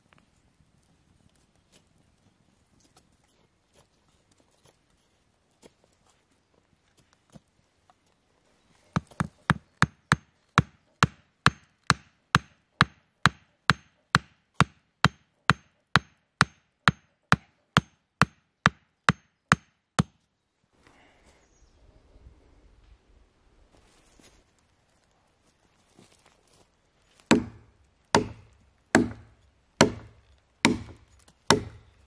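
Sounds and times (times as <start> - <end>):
hatchet knocking on wooden stake: 9.0 - 20.2, 27.3 - 32.0.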